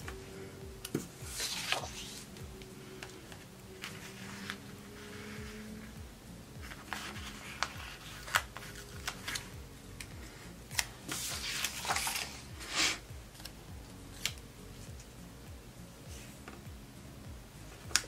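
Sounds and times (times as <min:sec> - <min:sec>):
paper sliding and rustling: 0:01.2 - 0:02.3, 0:03.0 - 0:05.8, 0:06.6 - 0:09.5, 0:10.8 - 0:13.5.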